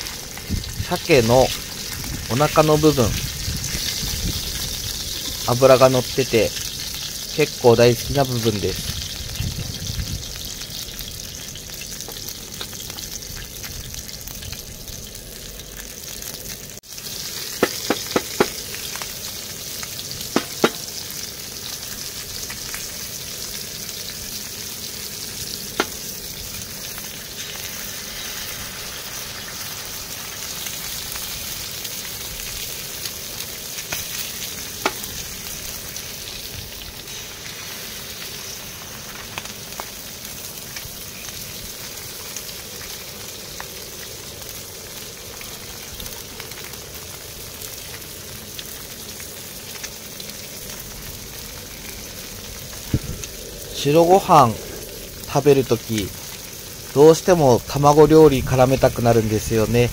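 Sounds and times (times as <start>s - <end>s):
fish sizzling in oil: 0.0s - 59.9s
sharp clicks and pops: 17.5s - 19.1s.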